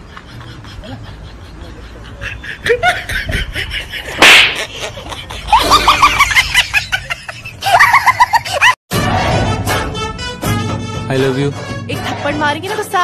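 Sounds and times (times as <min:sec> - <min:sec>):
loud sharp slap: 0:04.2 - 0:04.7.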